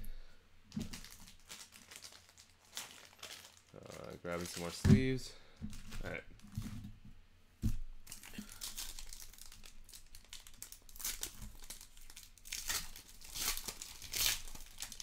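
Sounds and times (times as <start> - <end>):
foil wrapper crinkling and tearing: 0.8 - 4.8, 8.0 - 15.0.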